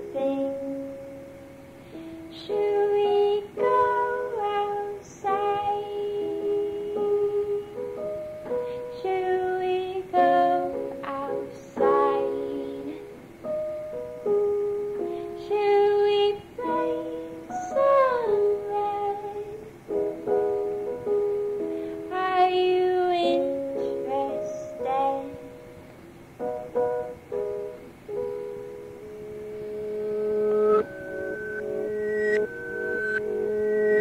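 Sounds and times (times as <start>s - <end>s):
woman singing: 0.0s - 0.9s, 2.3s - 7.8s, 8.8s - 13.2s, 15.2s - 19.7s, 22.1s - 25.4s.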